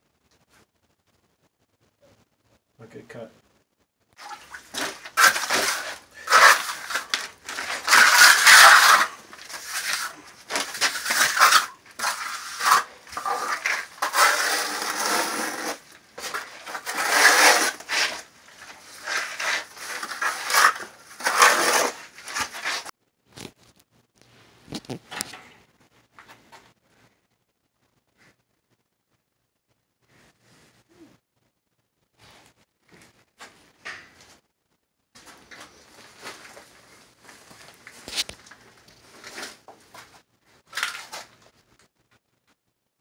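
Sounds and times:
trowel scraping mortar on concrete: 4.2s - 22.9s.

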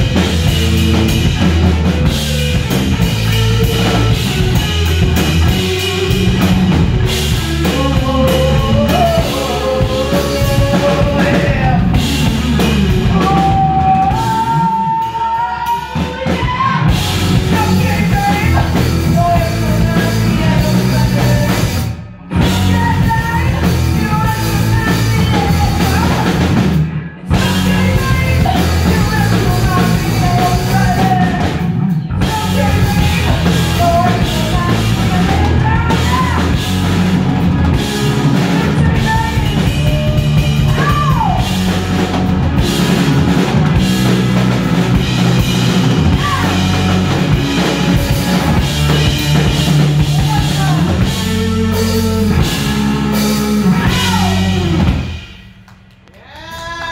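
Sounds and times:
rock band playing: 0.0s - 56.9s
woman singing: 7.2s - 21.7s, 22.4s - 26.4s, 27.3s - 31.6s, 32.2s - 36.7s, 38.4s - 41.5s.

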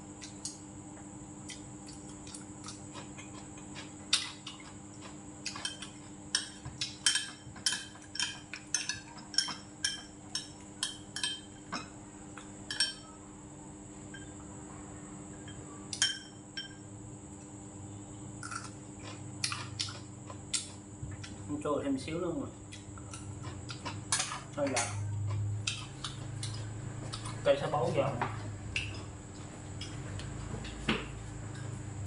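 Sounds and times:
faint steady hum: 0.0s - 32.0s
utensils clinking on ceramic bowl: 5.5s - 11.9s, 12.7s - 13.1s, 15.4s - 16.8s.

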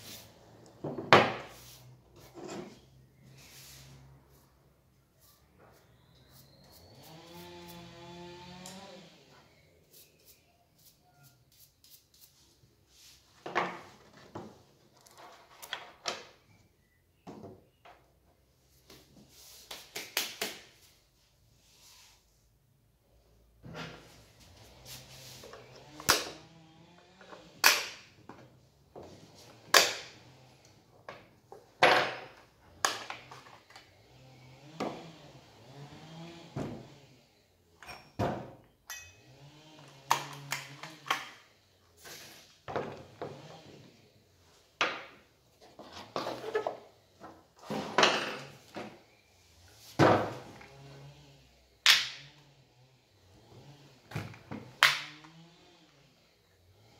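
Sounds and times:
tools handled on wooden workbench: 0.8s - 2.9s.

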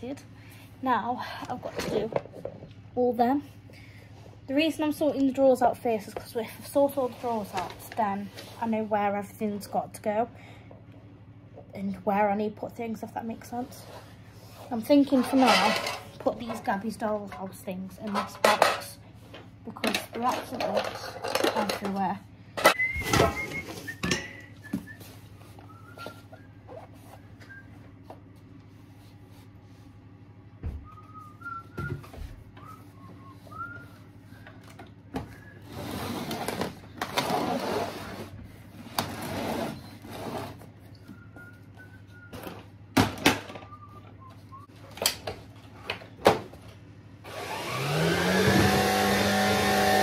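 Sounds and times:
rustling of toys and boxes: 5.8s - 9.3s, 13.2s - 30.1s, 30.9s - 46.8s
short whistled notes: 22.8s - 27.8s.

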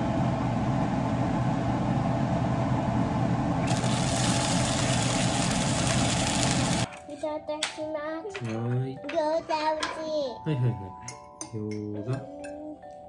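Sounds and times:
steady mechanical hum: 0.0s - 6.9s
dumplings sizzling in frying pan: 3.6s - 6.9s.

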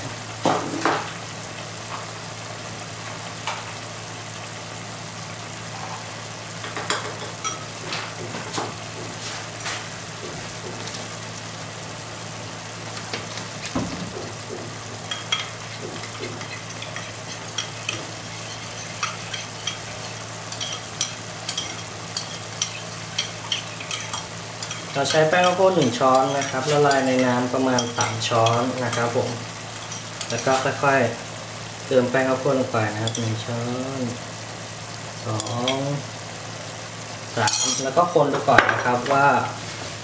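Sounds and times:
sauce sizzling in a wok: 0.0s - 40.0s
kitchen utensils clinking: 6.6s - 8.5s, 13.0s - 30.8s, 33.0s - 33.3s, 37.4s - 39.2s.

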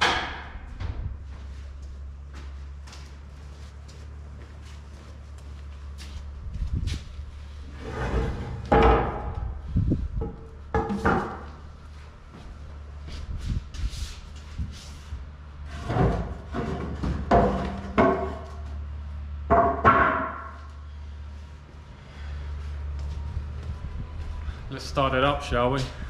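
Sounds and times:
steady low hum: 0.0s - 26.0s
knocks and bangs: 8.7s - 9.5s, 16.0s - 18.4s, 19.4s - 20.6s.

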